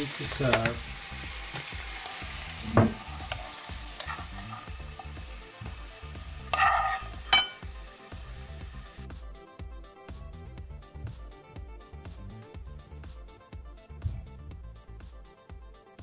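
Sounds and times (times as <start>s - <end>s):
asparagus sizzling in a frying pan: 0.0s - 9.1s
knocks against a pan: 2.7s - 3.0s.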